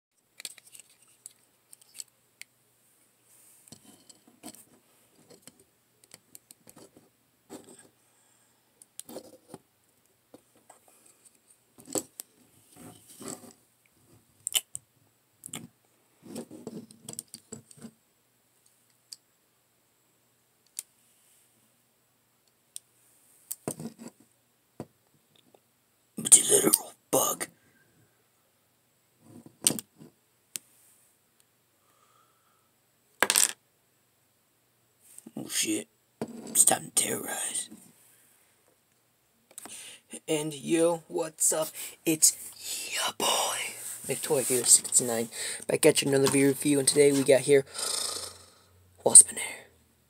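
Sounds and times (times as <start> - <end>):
action figures clicking and scraping: 0.4 - 2.2, 3.6 - 8.0, 10.4 - 13.6.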